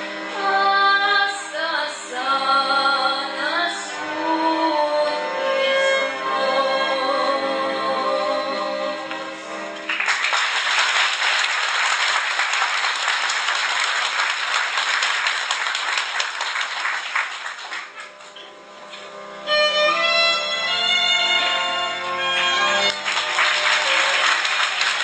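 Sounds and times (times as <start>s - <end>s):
instrumental folk music: 0.0s - 10.0s, 17.6s - 25.0s
audience applause: 9.9s - 18.2s, 22.4s - 25.0s.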